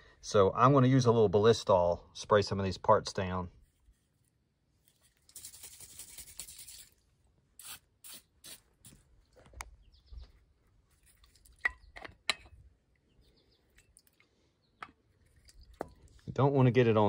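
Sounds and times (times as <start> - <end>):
aerosol can spraying: 5.3 - 7.0, 7.6 - 9.0.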